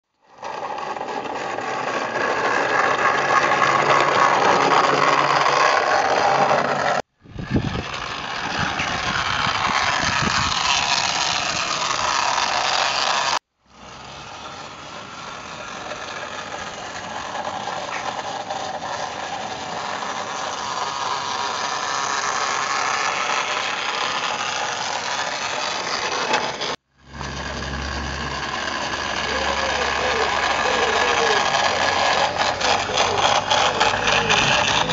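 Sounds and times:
small electric motor running: 0.2s - 34.9s
mechanical rattle: 16.2s - 34.9s.

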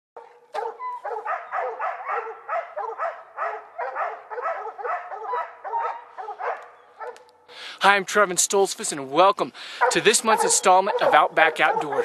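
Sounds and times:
dogs barking: 0.2s - 7.4s, 9.7s - 12.0s.

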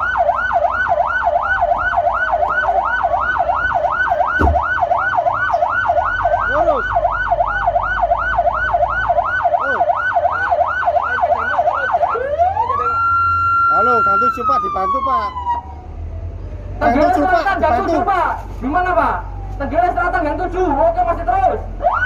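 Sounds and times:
electronic siren yelping: 0.0s - 15.9s, 21.7s - 22.0s.

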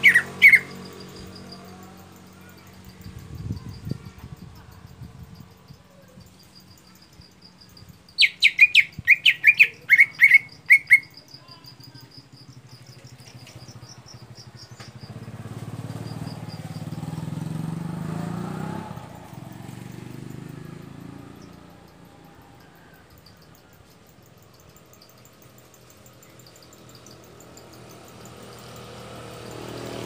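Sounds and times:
bird whistled song: 0.0s - 1.0s, 8.2s - 11.4s
insect chirring: 0.0s - 30.0s
passing vehicle engine hum: 0.0s - 30.0s.

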